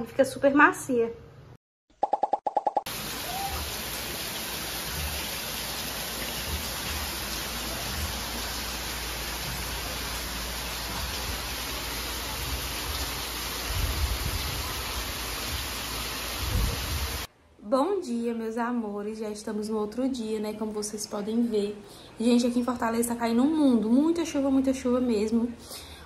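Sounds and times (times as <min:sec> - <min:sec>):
heavy rain on roof tiles: 0:02.9 - 0:17.3.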